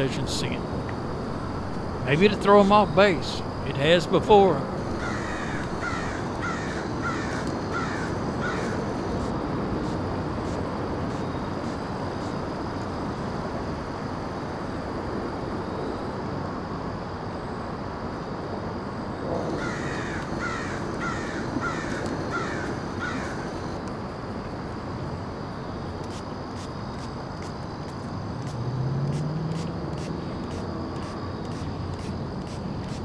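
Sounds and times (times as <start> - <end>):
outdoor background hiss: 0.0 - 33.0
bird calling: 4.8 - 8.8.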